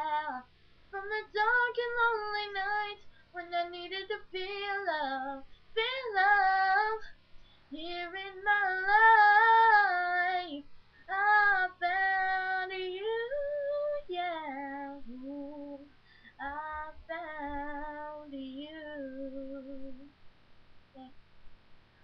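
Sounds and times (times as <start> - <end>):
girl singing unaccompanied: 0.0 - 20.1.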